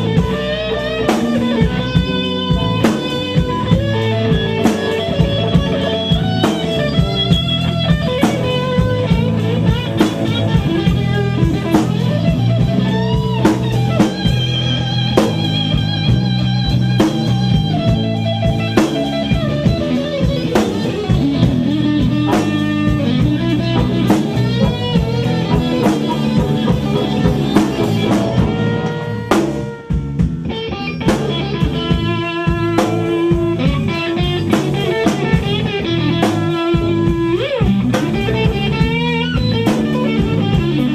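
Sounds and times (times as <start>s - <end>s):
drum kit: 0.0s - 40.9s
electric guitar with string bends: 0.0s - 40.9s.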